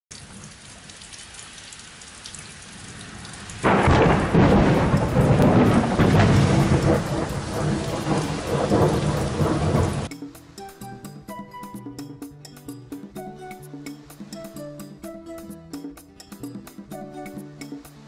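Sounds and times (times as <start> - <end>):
steady rain falling: 0.1 - 10.1, 16.3 - 18.0
thunder clap and rumble: 2.9 - 10.1.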